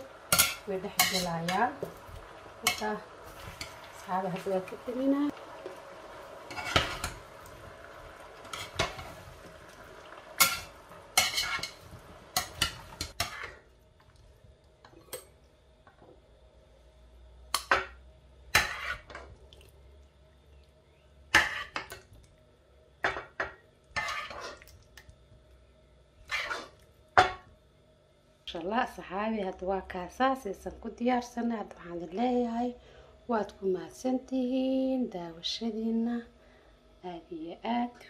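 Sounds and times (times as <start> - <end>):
utensils scraping a pan: 0.3 - 1.7, 6.5 - 7.2, 10.4 - 11.8, 12.4 - 13.6, 18.6 - 19.2, 21.4 - 21.9, 24.0 - 24.6, 26.2 - 26.8.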